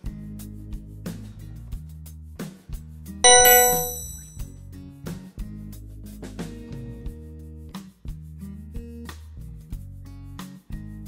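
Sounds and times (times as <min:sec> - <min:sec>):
plucked notes: 0:03.3 - 0:04.2.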